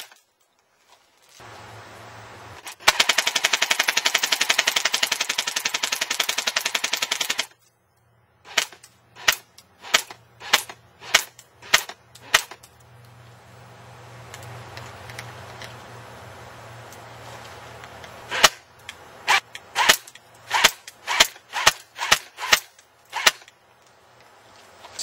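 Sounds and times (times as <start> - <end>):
airsoft gun firing: 8.5 - 12.6, 18.3 - 18.6, 19.3 - 23.5.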